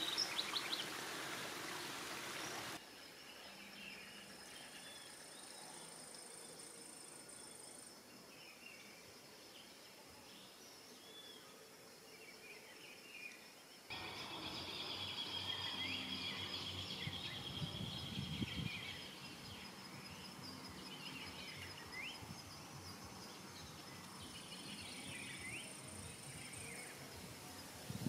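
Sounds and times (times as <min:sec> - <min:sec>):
high insect drone: 0:00.0 - 0:28.0
high insect whine: 0:13.9 - 0:28.0.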